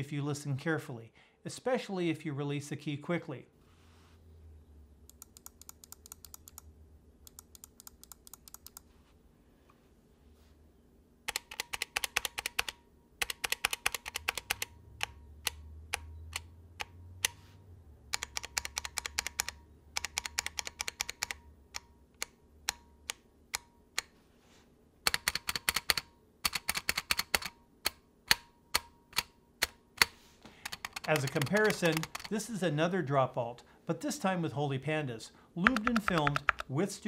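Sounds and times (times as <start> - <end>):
mechanical keyboard typing: 5.1 - 6.7, 7.3 - 8.8, 11.3 - 17.4, 18.1 - 24.1, 25.0 - 27.6, 28.3 - 32.3, 35.6 - 36.7
keyboard stabilizers rattling: 30.6 - 32.3, 35.6 - 36.7.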